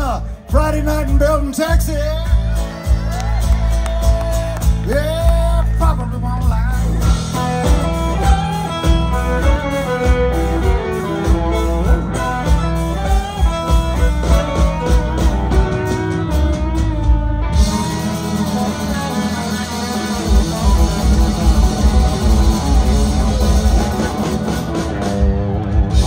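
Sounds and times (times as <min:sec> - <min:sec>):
country band playing: 0:00.0 - 0:26.0
electric guitar: 0:00.0 - 0:26.0
fiddle: 0:07.0 - 0:26.0.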